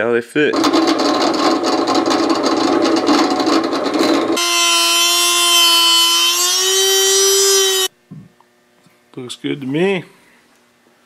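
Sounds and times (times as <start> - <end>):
drill grinding through tube: 4.4 - 7.9
rotary tool high whine: 4.4 - 7.9.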